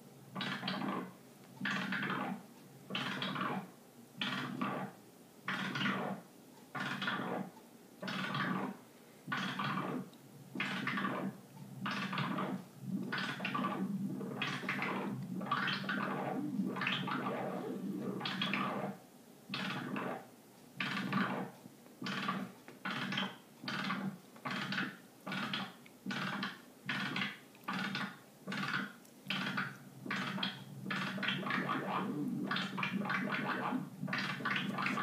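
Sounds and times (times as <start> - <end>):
chaotic synthesizer tone: 12.2 - 18.9, 31.0 - 35.0.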